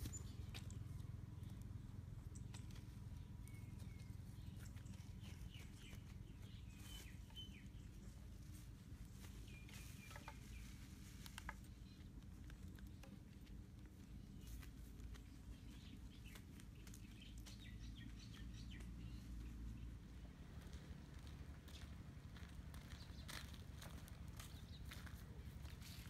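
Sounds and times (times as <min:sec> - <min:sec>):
faint bird chirps: 0:00.0 - 0:01.6, 0:02.2 - 0:08.1
steady low rumble: 0:11.8 - 0:26.0.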